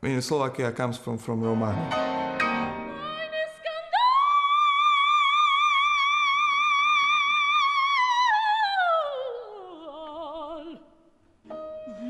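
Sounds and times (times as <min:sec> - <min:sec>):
piano notes: 0:01.3 - 0:03.4, 0:11.5 - 0:12.0
operatic soprano singing: 0:02.9 - 0:11.0.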